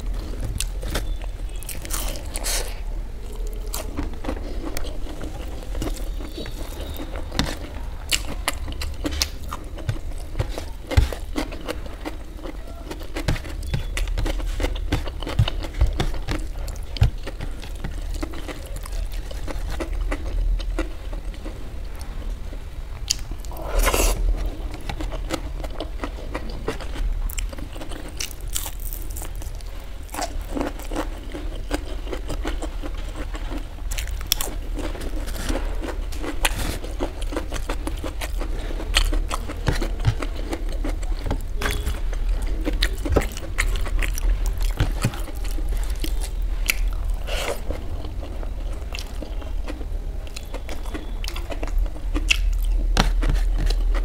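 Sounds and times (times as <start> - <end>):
crunching of fried snacks: 0.0 - 21.6, 23.0 - 54.0
person chewing food: 0.0 - 22.2, 23.0 - 54.0.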